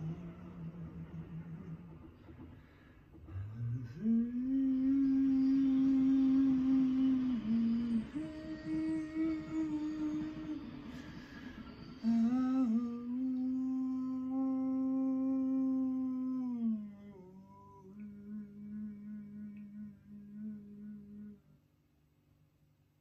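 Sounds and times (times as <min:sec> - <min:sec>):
person singing long held notes: 0:00.0 - 0:02.1, 0:03.3 - 0:21.5.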